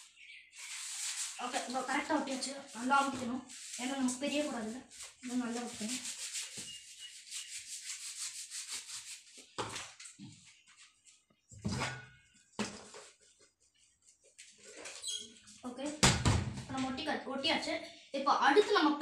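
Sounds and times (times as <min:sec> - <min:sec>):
hands rubbing cardboard: 0:00.6 - 0:09.6.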